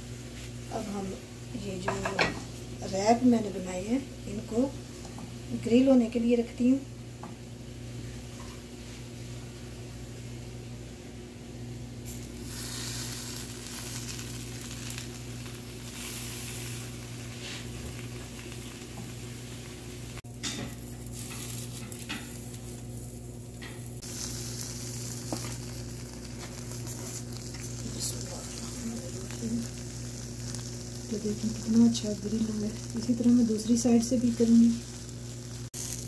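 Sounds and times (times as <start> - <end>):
steady low hum: 0.0 - 36.0
wraps sizzling on a grill pan: 12.0 - 36.0.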